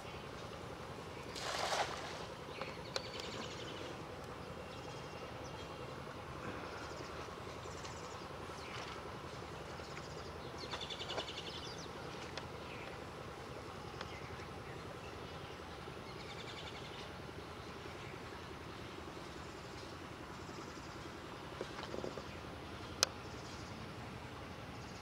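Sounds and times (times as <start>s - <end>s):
birds chirping and trilling: 0.0s - 25.0s
net splashing into water: 1.3s - 2.3s.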